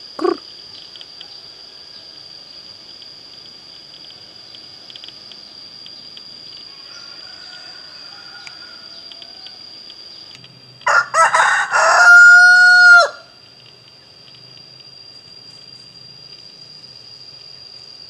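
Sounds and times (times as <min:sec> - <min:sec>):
rooster crowing: 0:06.7 - 0:09.7, 0:10.8 - 0:13.4.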